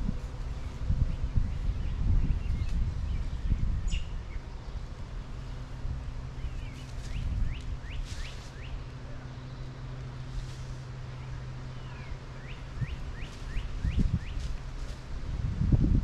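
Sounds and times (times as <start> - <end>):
steady low hum: 0.0 - 16.0
wind rumbling on microphone: 0.0 - 16.0
chirping bird calls: 11.1 - 14.5.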